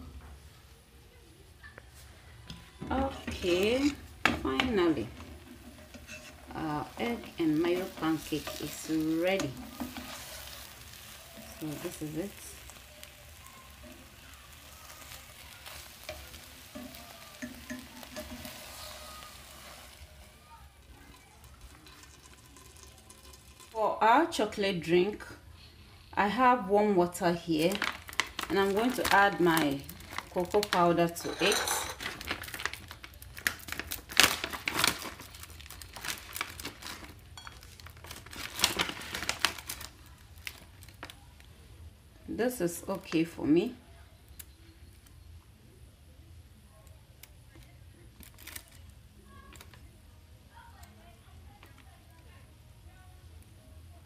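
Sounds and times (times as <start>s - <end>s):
pancake sizzling in frying pan: 2.9s - 24.6s, 27.1s - 41.3s
plastic spatula scraping pan: 4.6s - 7.4s
plastic pouch crinkling: 5.0s - 23.8s, 27.6s - 41.5s, 48.1s - 49.8s.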